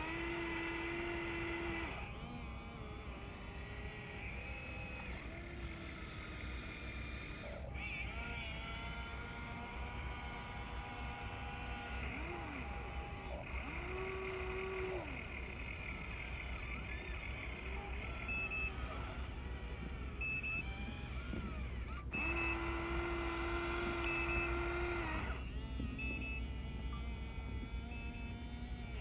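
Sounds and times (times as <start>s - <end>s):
electric motors whining: 0.0s - 29.0s.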